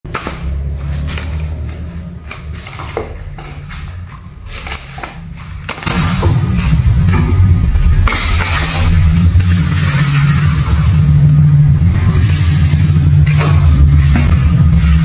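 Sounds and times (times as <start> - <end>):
paper toy crinkling and crackling: 0.1 - 6.7
low steady drone: 0.5 - 15.0.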